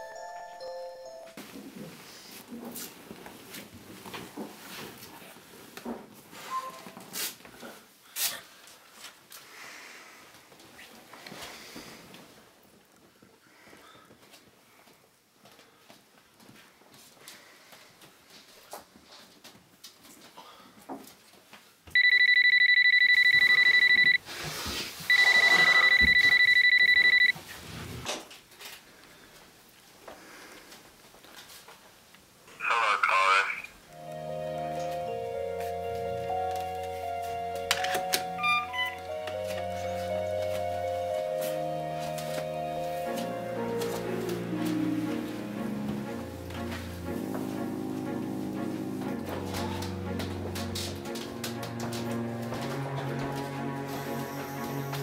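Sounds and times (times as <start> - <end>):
telephone ringing: 21.9 - 24.2, 25.1 - 27.4, 34.0 - 41.1.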